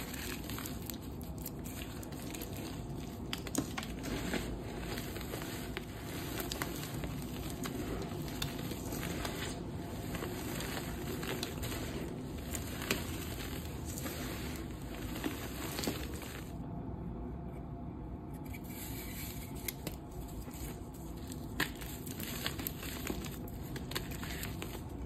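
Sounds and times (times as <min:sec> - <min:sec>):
chalk crumbled by hand: 0:00.0 - 0:16.6, 0:18.5 - 0:25.0.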